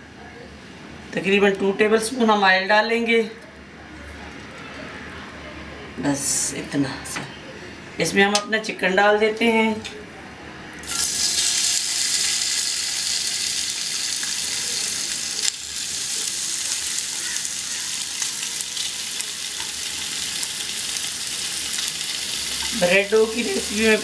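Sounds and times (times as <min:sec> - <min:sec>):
chicken sizzling in hot oil: 0:10.8 - 0:24.0.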